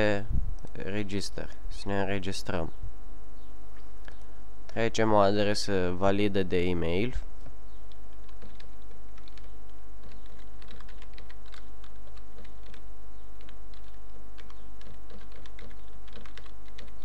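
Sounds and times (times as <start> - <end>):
low electrical hum: 0.0 - 17.0
keyboard keys clicking: 7.9 - 12.8, 13.4 - 17.0.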